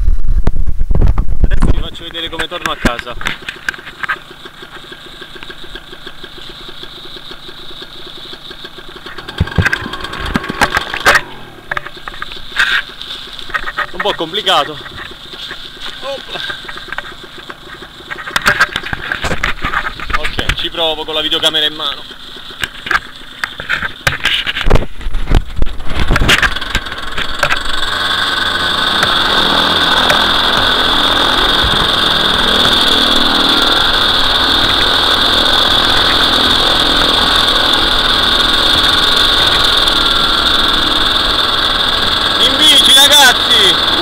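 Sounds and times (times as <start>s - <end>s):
two-stroke engine starting and running: 0.2s - 44.0s
high-pitched engine note: 8.6s - 12.6s, 26.5s - 44.0s.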